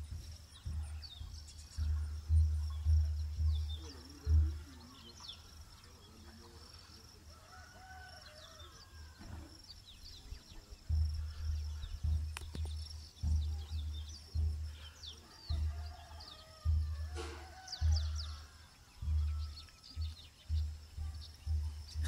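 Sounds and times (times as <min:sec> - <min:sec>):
small birds chirping: 0:00.0 - 0:22.0
faint rooster crowing: 0:06.9 - 0:09.7, 0:14.7 - 0:20.6.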